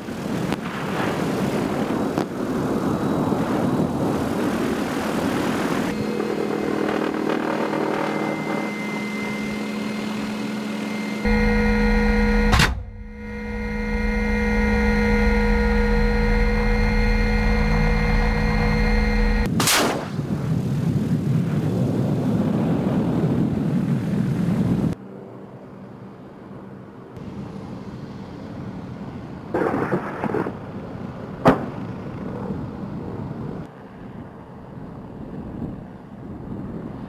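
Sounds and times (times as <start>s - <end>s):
helicopter turbine and rotor whine: 0.0s - 19.5s, 23.6s - 29.6s, 30.6s - 37.0s
rocket firing crack: 19.5s - 20.6s.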